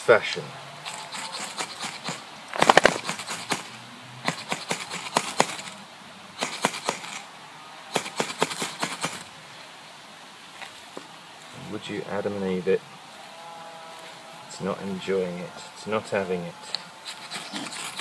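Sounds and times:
striker scraping fire steel: 0:16.7 - 0:18.0.

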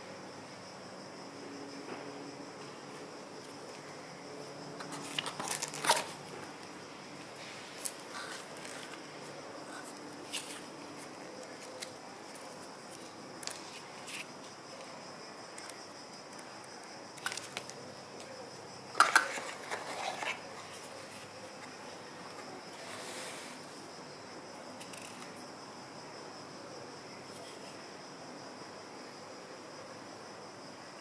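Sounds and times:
faint steady hiss: 0:00.0 - 0:31.0
paper rustling: 0:04.8 - 0:06.7, 0:19.0 - 0:23.6.

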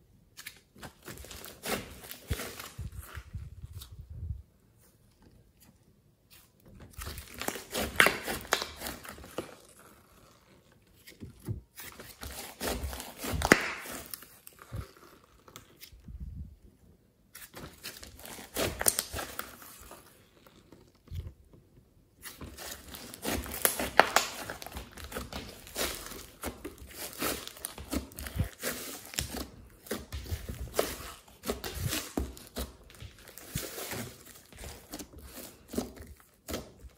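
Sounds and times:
slime crackling and popping: 0:06.9 - 0:10.1, 0:11.9 - 0:15.7, 0:22.3 - 0:36.9.

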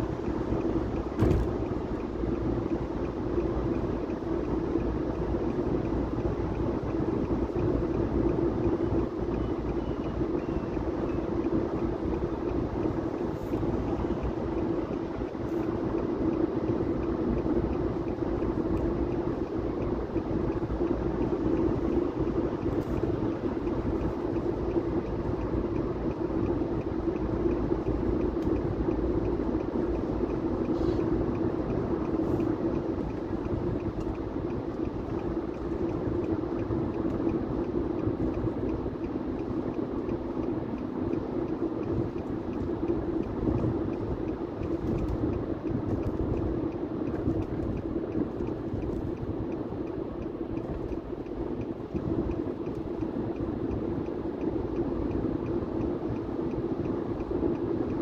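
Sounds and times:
tyre noise on road: 0:00.0 - 0:09.2
constant low hum: 0:00.0 - 0:58.0.

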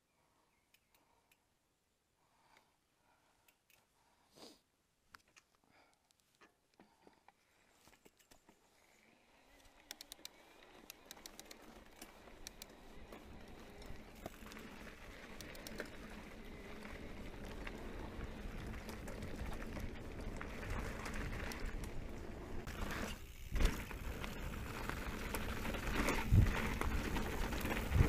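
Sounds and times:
bike rolling rumble: 0:09.5 - 0:28.0
stones clicking under bike tyres: 0:09.5 - 0:28.0.

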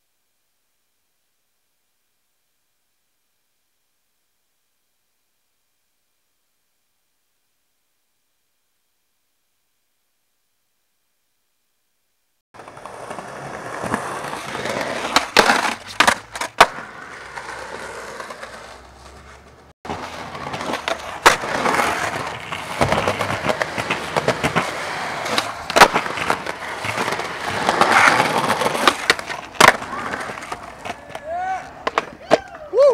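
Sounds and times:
skateboard wheels rolling on pavement: 0:12.5 - 0:32.9
skateboard clacking on ground: 0:12.6 - 0:32.6.

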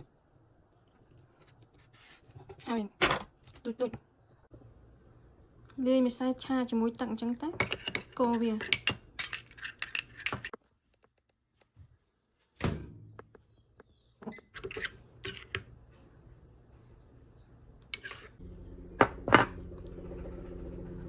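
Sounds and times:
steady low hum: 0:18.4 - 0:21.0.

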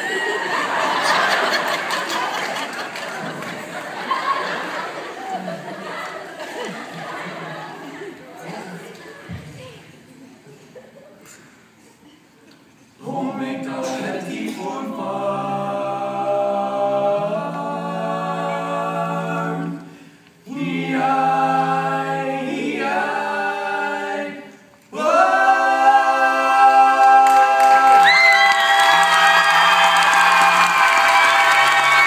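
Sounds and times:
choir singing a cappella: 0:12.9 - 0:28.1
cheering and applause: 0:27.2 - 0:32.0.

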